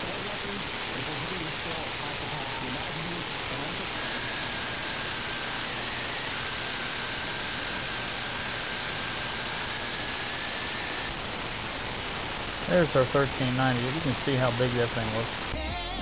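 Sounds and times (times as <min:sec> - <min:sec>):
radio static hiss: 0:00.0 - 0:16.0
faint steady whistle: 0:01.0 - 0:15.6.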